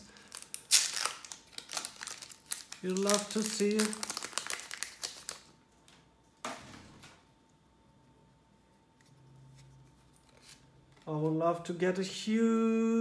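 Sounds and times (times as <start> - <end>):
foil wrapper crinkling: 0.0 - 5.5.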